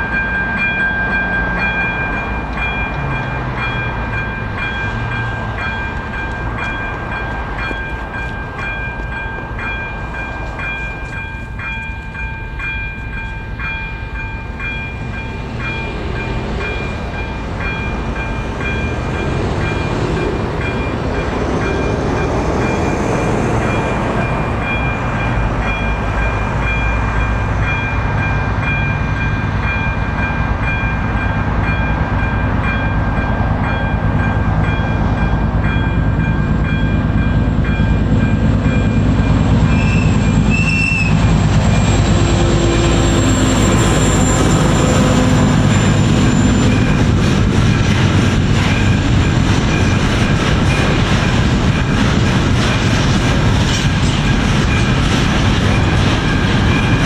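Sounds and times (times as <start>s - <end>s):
level crossing warning bell: 0.0s - 40.6s, 41.2s - 53.3s, 53.9s - 57.0s
diesel locomotive engine rumble: 0.0s - 57.0s
train wagons rolling: 0.0s - 57.0s.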